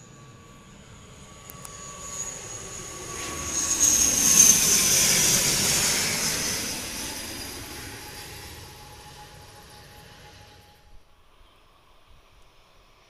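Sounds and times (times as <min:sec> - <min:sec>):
turboprop plane passing overhead: 0:00.0 - 0:13.0.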